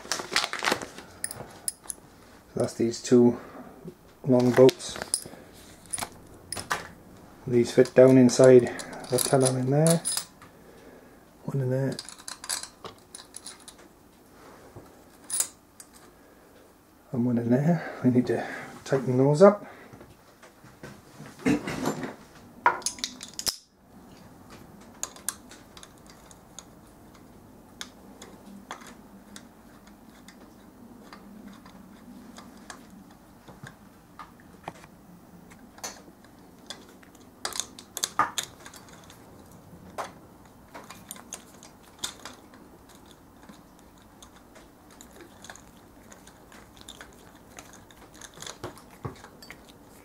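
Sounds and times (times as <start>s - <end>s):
handling noise: 3.9s - 10.5s
metallic clicks of tools and bolts: 7.8s - 10.4s, 11.9s - 13.9s, 22.8s - 23.7s, 36.6s - 39.2s, 40.0s - 49.8s.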